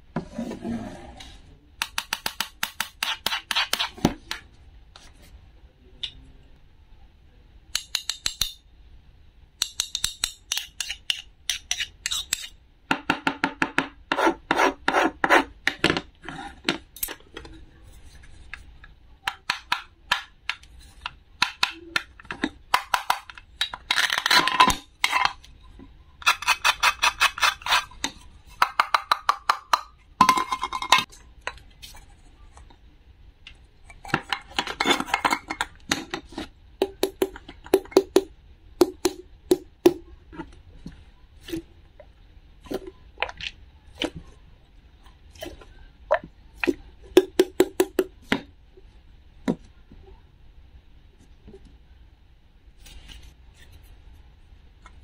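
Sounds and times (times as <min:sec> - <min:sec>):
toy knife scraping plastic board: 0:26.3 - 0:28.0.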